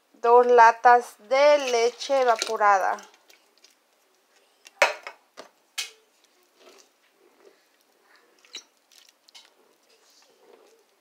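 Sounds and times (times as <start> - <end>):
metal spoon stirring rice in pot: 1.4 - 3.8.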